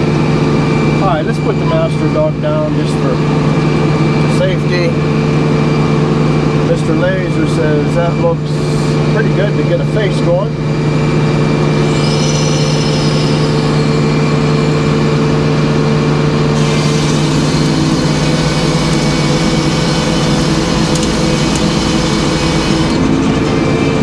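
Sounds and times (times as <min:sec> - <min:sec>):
sawmill droning: 0:00.0 - 0:24.0
saw blade cutting log: 0:11.9 - 0:14.0, 0:16.6 - 0:23.2.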